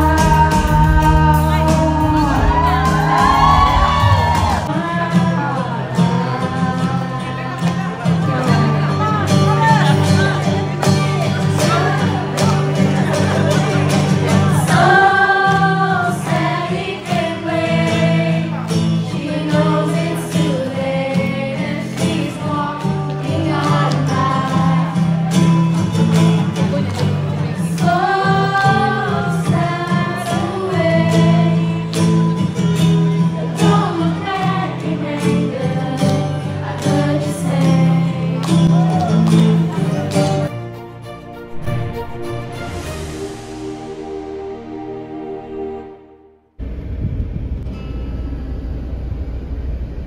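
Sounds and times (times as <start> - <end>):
boy singing: 0.0 - 3.1
acoustic guitar: 0.0 - 50.0.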